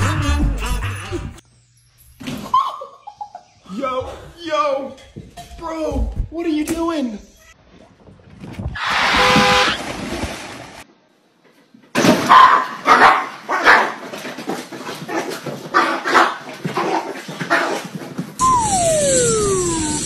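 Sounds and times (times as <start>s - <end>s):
small dog barking: 12.3s - 14.0s.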